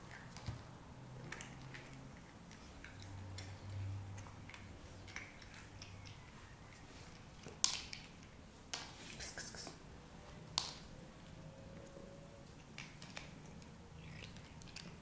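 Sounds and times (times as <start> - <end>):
cat crunching dry kibble: 12.6 - 15.0.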